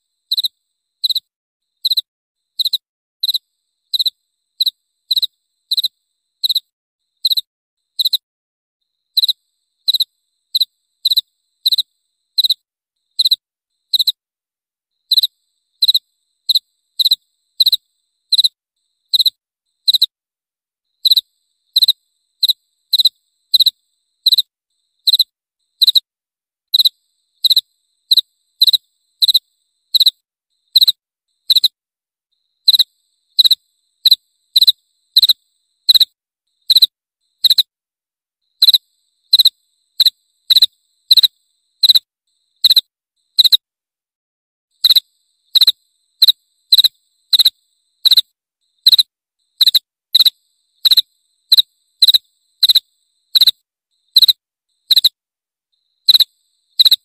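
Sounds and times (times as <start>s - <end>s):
cricket chirping: 0.0s - 14.3s, 14.9s - 20.2s, 20.8s - 37.8s, 38.4s - 43.7s, 44.7s - 57.0s.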